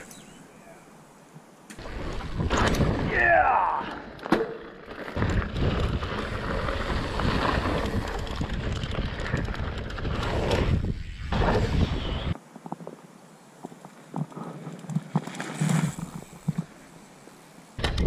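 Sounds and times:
tyre noise on dirt: 0:01.4 - 0:18.0
bike frame rattling: 0:04.4 - 0:10.9
wind buffeting microphone: 0:05.2 - 0:12.4.

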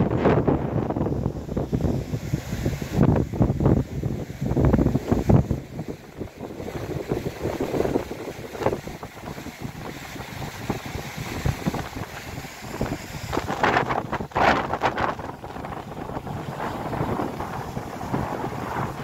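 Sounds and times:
floodwater rushing down river: 0:00.0 - 0:19.0
wind buffeting microphone: 0:00.0 - 0:19.0.

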